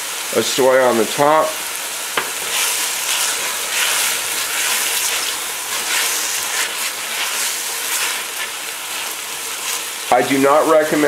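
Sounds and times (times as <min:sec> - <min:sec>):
food sizzling in oil: 0:00.0 - 0:11.0
spatula stirring in pot: 0:02.1 - 0:10.2.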